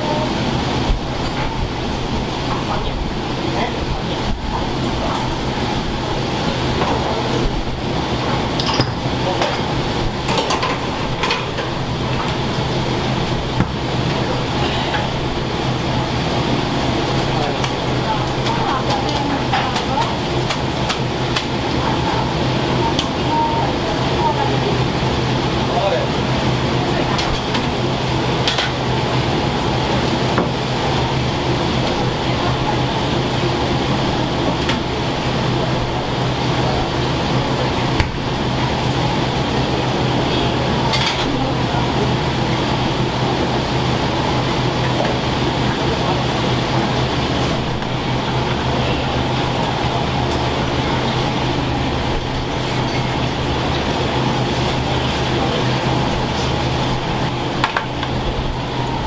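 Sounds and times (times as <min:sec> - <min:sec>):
kitchen hum: 0:00.0 - 0:59.0
dishes and utensils clinking: 0:08.6 - 0:09.6.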